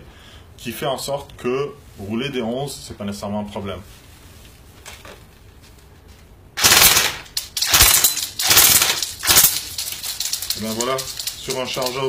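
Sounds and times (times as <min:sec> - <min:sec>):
airsoft rifle firing bursts: 0:06.6 - 0:10.0.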